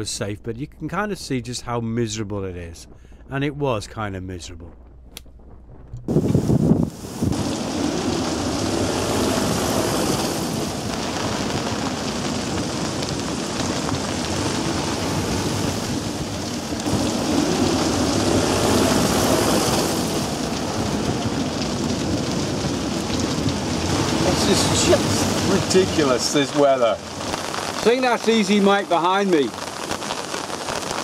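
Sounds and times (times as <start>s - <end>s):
wind buffeting microphone: 4.3s - 26.4s
strong wind: 4.5s - 28.2s
rain: 4.8s - 31.0s.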